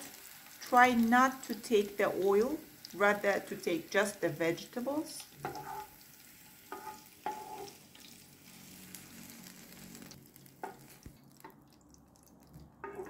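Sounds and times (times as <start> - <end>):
oil sizzling in a frying pan: 0.0 - 13.0.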